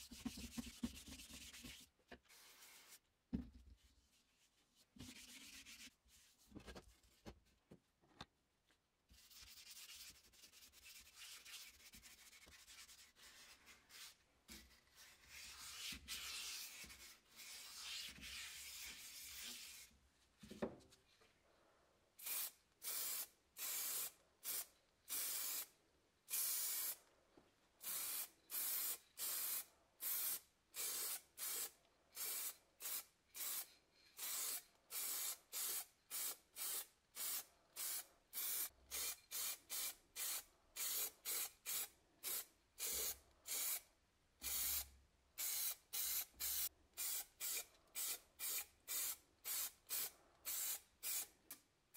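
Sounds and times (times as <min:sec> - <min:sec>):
spray-paint can hissing: 0:22.2 - 0:25.7.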